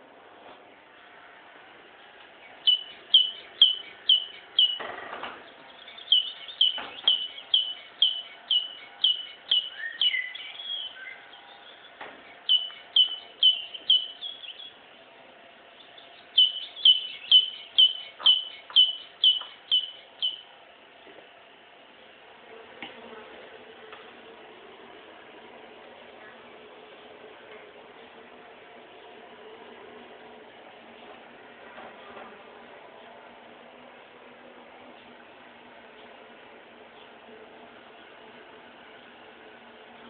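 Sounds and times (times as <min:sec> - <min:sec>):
bird chirping: 0:02.4 - 0:14.8, 0:15.7 - 0:20.5.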